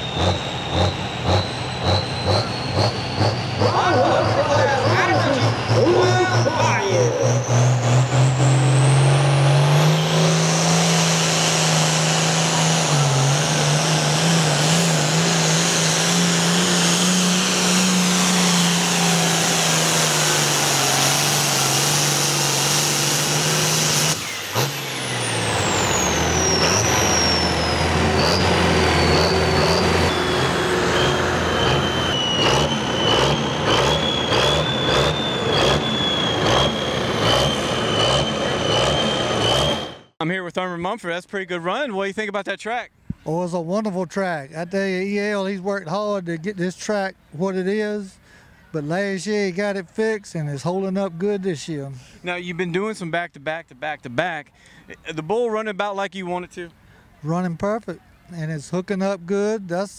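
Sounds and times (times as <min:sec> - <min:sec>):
tractor diesel engine running: 0:00.0 - 0:40.2.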